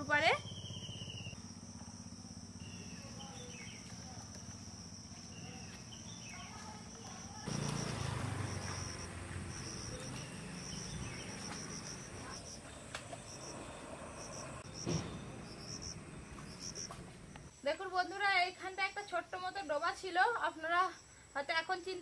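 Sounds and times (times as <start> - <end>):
insects chirring: 0.0 - 21.9
person wading through water: 3.8 - 14.0
water splash: 7.5 - 13.3.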